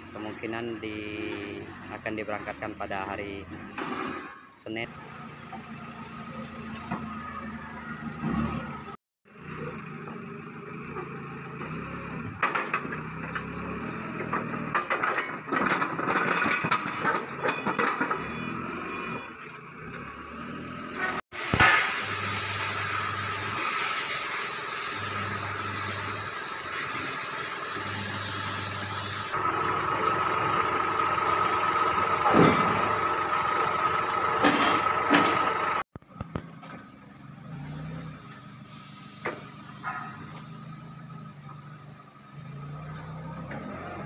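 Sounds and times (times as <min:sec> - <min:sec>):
diesel engine running: 0:04.8 - 0:44.0
excavator tracks clanking: 0:10.9 - 0:18.5, 0:34.0 - 0:37.0.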